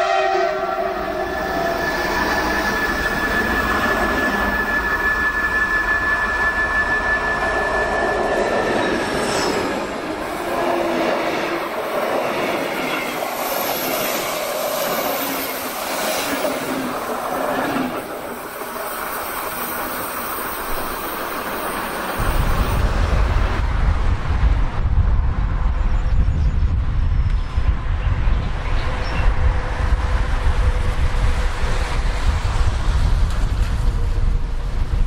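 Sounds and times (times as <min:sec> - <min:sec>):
locomotive high whine: 0:00.0 - 0:25.6.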